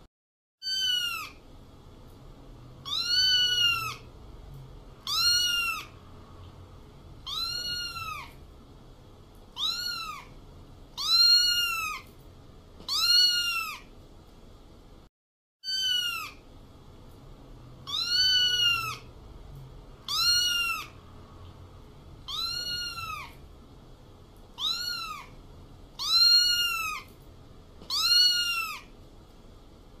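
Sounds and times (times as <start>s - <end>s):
cat meowing: 0.6s - 1.4s, 2.8s - 4.1s, 5.0s - 6.0s, 7.2s - 8.4s, 9.6s - 10.4s, 11.0s - 12.1s, 12.8s - 13.9s, 15.6s - 16.4s, 17.8s - 19.1s, 20.0s - 21.0s, 22.2s - 23.4s, 24.6s - 25.4s, 26.0s - 27.1s, 27.8s - 28.9s.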